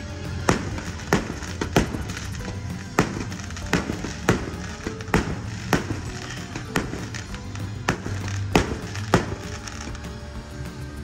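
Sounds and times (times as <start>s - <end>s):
fireworks bursting: 0.0s - 10.5s
music: 0.0s - 11.0s.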